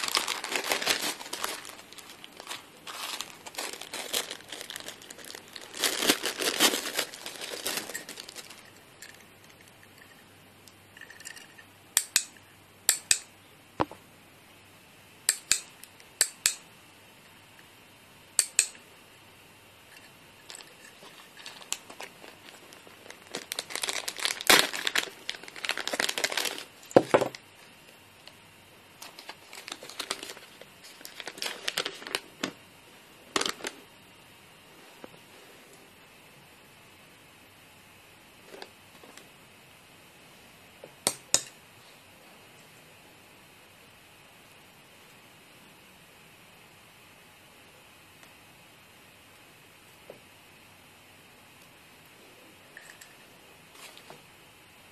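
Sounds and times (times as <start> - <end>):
plastic and paper crinkling: 0.0 - 9.8, 20.0 - 28.4, 29.0 - 32.6, 33.3 - 33.8.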